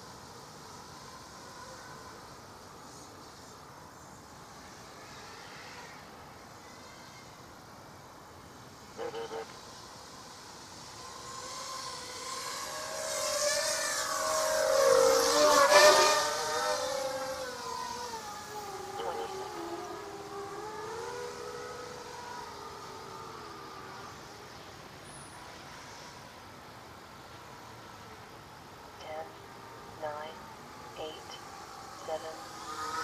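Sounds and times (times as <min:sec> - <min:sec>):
drone propellers whining: 0:08.8 - 0:25.0, 0:29.0 - 0:33.0.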